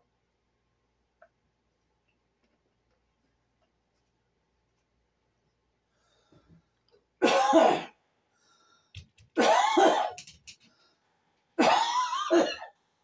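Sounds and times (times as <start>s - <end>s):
person coughing harshly: 7.2s - 8.0s, 9.4s - 10.2s, 11.6s - 12.8s.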